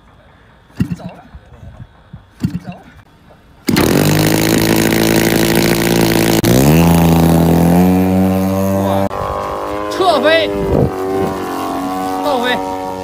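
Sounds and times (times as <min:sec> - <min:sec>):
model airplane engine and propeller: 0:03.7 - 0:13.0.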